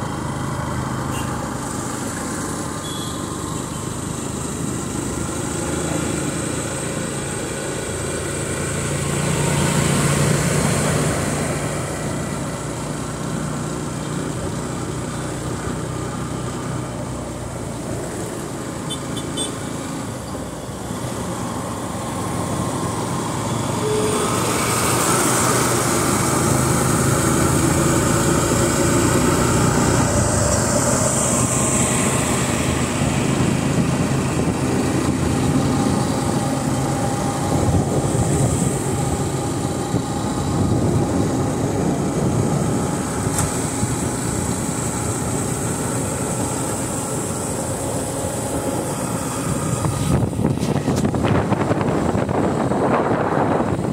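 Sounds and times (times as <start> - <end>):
road noise: 0.0 - 53.9
wind noise: 29.0 - 45.4, 48.5 - 53.9.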